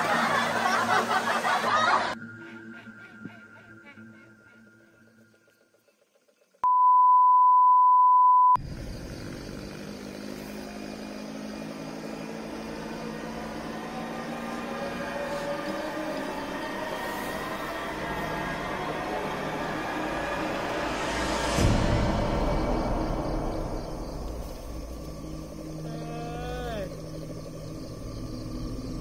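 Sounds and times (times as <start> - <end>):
steady electronic beep: 6.6 - 8.6
street noise: 8.6 - 29.0
vehicle engine hum: 8.6 - 29.0.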